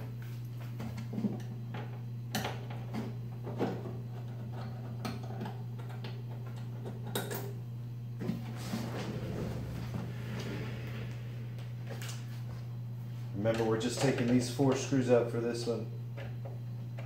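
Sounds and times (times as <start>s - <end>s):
steady low hum: 7.8s - 14.3s.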